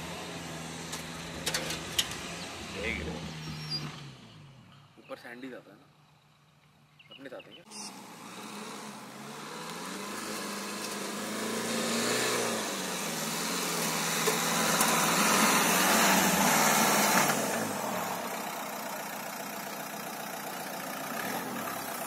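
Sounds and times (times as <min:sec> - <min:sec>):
diesel engine labouring: 0:00.0 - 0:06.9, 0:07.6 - 0:22.0
sand hiss from spinning tyres: 0:07.9 - 0:22.0.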